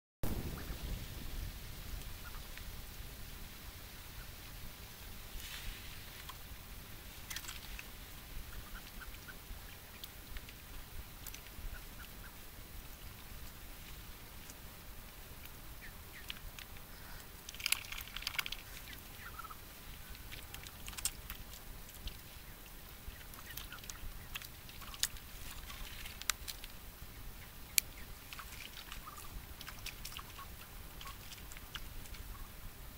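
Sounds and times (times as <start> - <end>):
duck bills dabbling in water: 1.9 - 2.6, 5.9 - 32.6
soft duck calls: 2.0 - 2.6, 8.2 - 12.6, 18.5 - 21.2.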